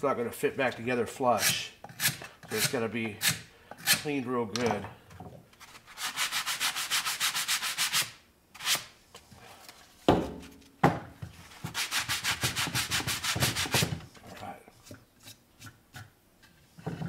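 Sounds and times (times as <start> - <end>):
hand sanding wood: 5.7 - 8.9, 11.4 - 14.0
knock on wood: 10.1 - 11.1.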